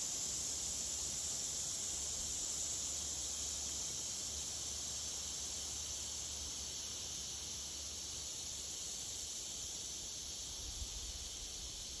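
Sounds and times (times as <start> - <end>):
breeze through trees: 0.0 - 12.0.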